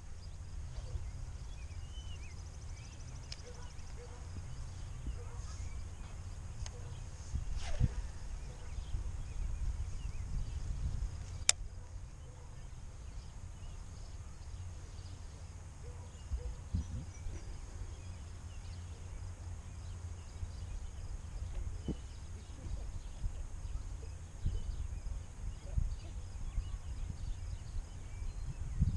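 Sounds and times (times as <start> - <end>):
wind rumbling on microphone: 0.0 - 14.0, 16.1 - 18.8, 20.1 - 28.9
faint bird chirps: 0.1 - 28.9
sharp click: 11.2 - 11.6.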